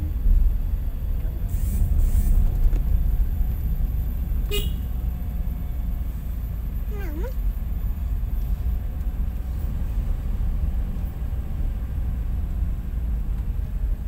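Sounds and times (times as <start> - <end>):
car driving rumble inside cabin: 0.0 - 14.0
car horn toot: 4.5 - 5.0.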